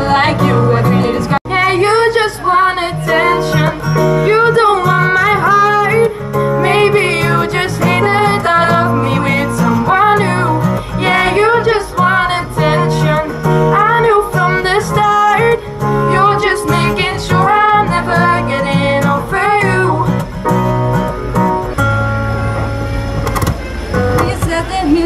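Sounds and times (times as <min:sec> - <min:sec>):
woman singing: 0:00.0 - 0:20.2, 0:24.2 - 0:25.0
strummed acoustic guitar: 0:00.0 - 0:25.0.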